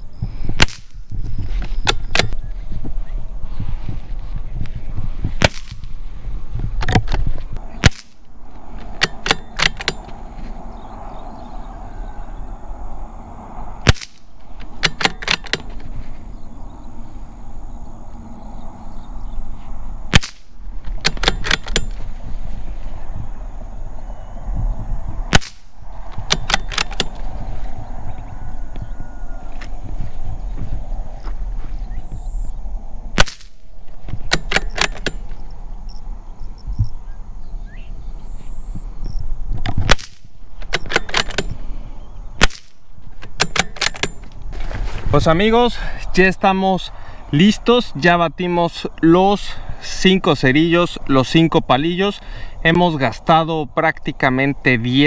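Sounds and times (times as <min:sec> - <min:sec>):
wind rumble on microphone: 0:00.0 - 0:55.0
rifle shot: 0:05.4 - 0:05.9, 0:07.8 - 0:10.1, 0:13.8 - 0:15.7, 0:20.1 - 0:22.0, 0:25.3 - 0:27.2, 0:33.2 - 0:35.4, 0:39.8 - 0:41.6, 0:42.4 - 0:44.3
metallic clicks of rifle bolt: 0:07.9 - 0:10.2, 0:14.0 - 0:15.9, 0:20.2 - 0:22.0, 0:25.4 - 0:27.2, 0:33.2 - 0:35.5, 0:39.6 - 0:41.6, 0:42.4 - 0:44.5.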